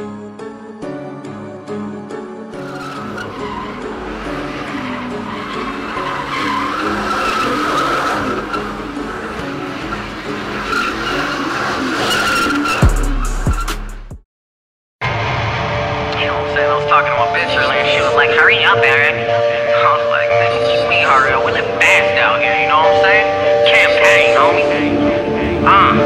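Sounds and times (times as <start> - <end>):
engine revving hard: 2.6 - 13.6
tyres squealing: 2.6 - 13.7, 17.4 - 26.0
deep boom: 15.0 - 16.8.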